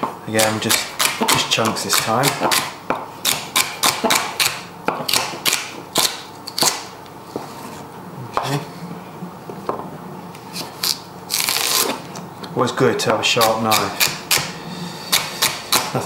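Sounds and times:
knife chopping on wooden board: 0.0s - 6.9s, 13.4s - 14.5s, 15.1s - 16.0s.

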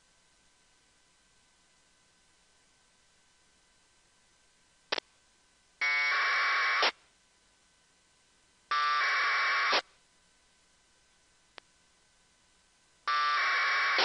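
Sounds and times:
harsh buzzing data tone bursts: 5.8s - 7.0s, 8.7s - 9.9s, 13.0s - 14.0s.

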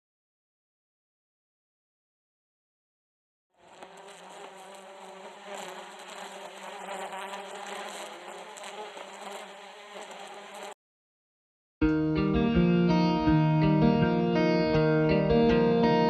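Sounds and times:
bees buzzing: 3.6s - 10.8s.

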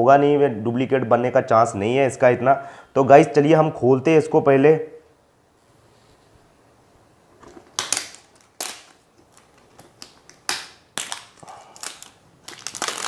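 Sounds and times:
plastic wrap crinkling and tearing: 7.4s - 13.0s.

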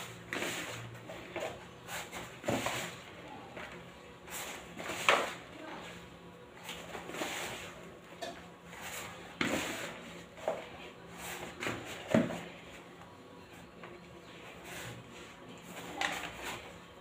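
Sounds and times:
dough thudding and squelching: 0.0s - 6.0s, 8.7s - 12.7s.

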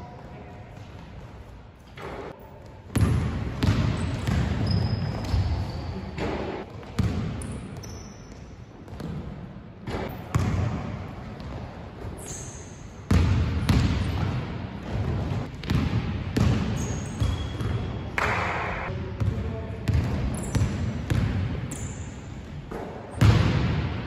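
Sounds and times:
sneaker squeaks: 0.8s - 8.6s, 11.4s - 13.0s, 16.6s - 18.3s, 19.9s - 20.9s, 21.6s - 22.2s
basketball bouncing on wood floor: 2.9s - 5.5s, 14.9s - 17.8s.

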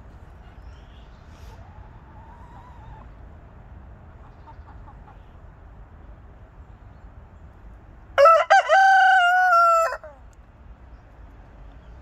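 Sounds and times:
hens clucking faintly: 0.3s - 3.4s, 4.1s - 5.5s
rooster crowing: 8.2s - 10.2s.

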